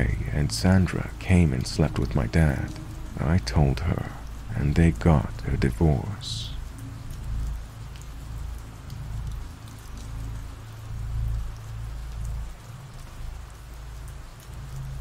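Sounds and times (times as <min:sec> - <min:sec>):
low rumble: 0:00.0 - 0:07.5
rain drops pattering: 0:00.0 - 0:15.0.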